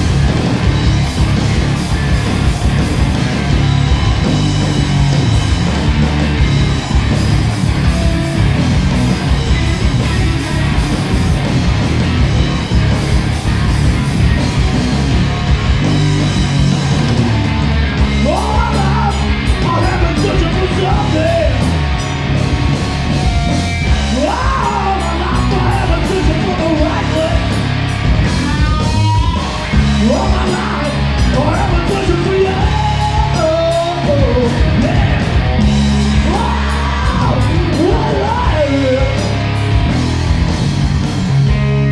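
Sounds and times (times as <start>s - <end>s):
live rock band playing: 0.0s - 41.9s
person yelling vocals: 18.2s - 21.7s, 24.1s - 27.5s, 36.2s - 39.2s.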